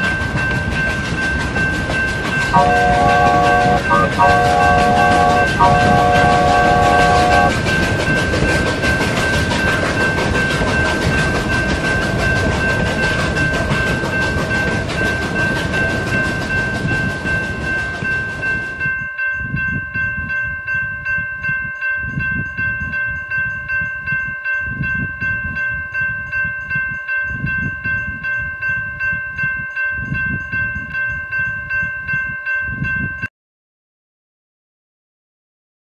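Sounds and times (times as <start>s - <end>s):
train rumbling past: 0.0s - 18.9s
railroad crossing bell ringing: 0.0s - 33.3s.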